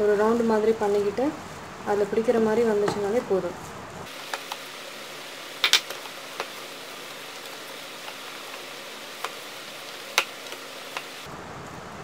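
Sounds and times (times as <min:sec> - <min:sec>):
steady hiss: 0:04.0 - 0:11.3.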